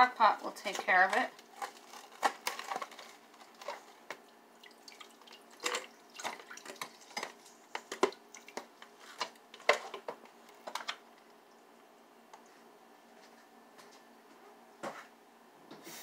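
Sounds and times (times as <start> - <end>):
drips and splashes: 4.6 - 8.7.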